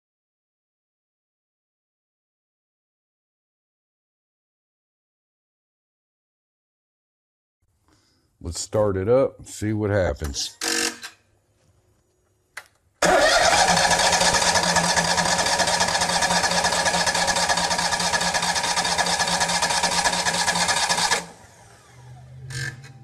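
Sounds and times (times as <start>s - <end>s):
engine cranking with starter: 13.0s - 23.0s.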